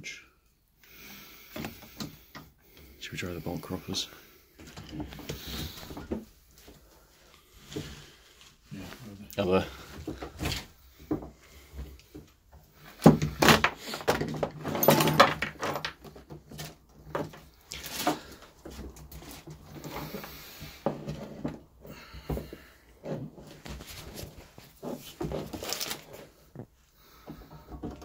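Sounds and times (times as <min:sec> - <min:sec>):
hand tools clattering on wood: 0:12.9 - 0:20.2, 0:27.1 - 0:28.0.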